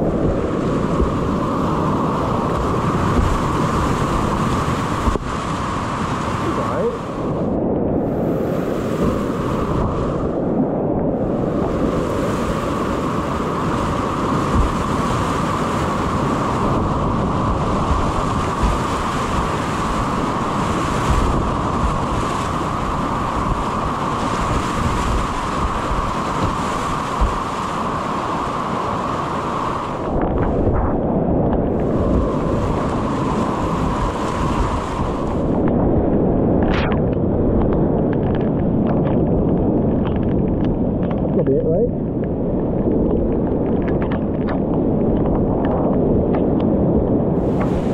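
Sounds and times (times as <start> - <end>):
whitewater rapids rushing: 0.0 - 7.5, 11.2 - 30.8, 31.7 - 35.6
wind buffeting microphone: 0.0 - 47.9.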